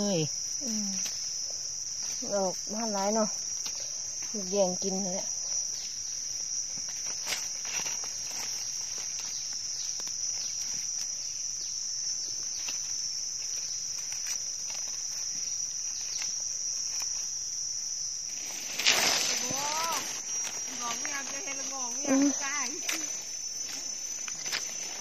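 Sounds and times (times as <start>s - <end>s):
insects droning: 0.0s - 25.0s
knife digging in leaf litter: 18.3s - 21.7s.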